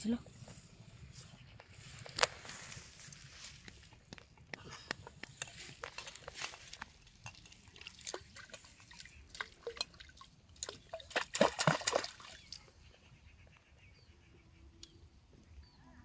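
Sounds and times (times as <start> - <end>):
water splashing and dripping: 5.6 - 12.7.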